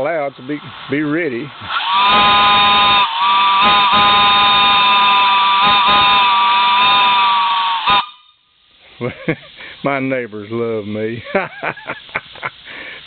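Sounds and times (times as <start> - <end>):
steam whistle chord: 1.7 - 8.5.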